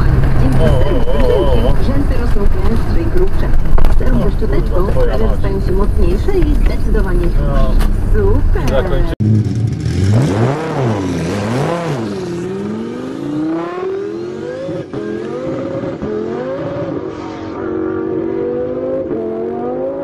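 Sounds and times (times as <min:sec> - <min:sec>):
sports car accelerating: 0:07.2 - 0:20.0.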